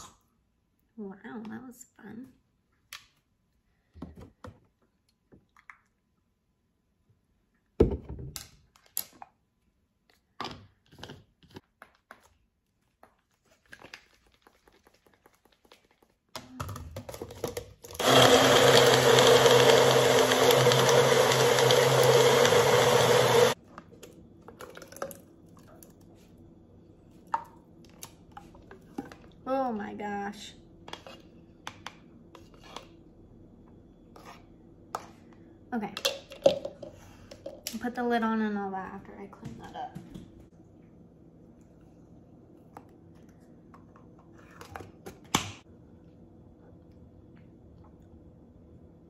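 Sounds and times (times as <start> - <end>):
blender running: 18.0 - 23.6.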